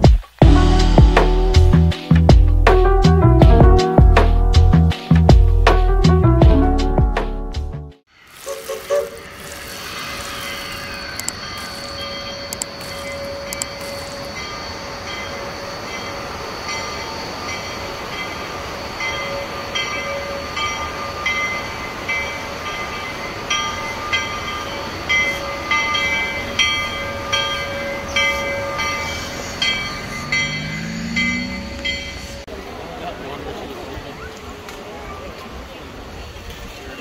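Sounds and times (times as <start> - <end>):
steam locomotive bell ringing: 8.6 - 32.6.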